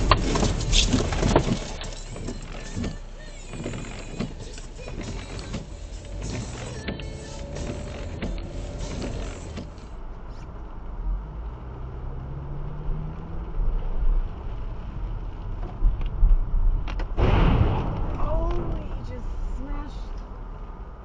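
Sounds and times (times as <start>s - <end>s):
road and engine noise: 0.0s - 21.0s
loud harsh crash: 17.2s - 19.1s.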